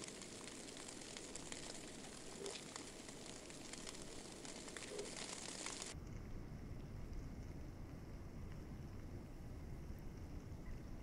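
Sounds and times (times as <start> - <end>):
faint ticks: 0.0 - 7.6
steady faint hiss: 0.0 - 11.0.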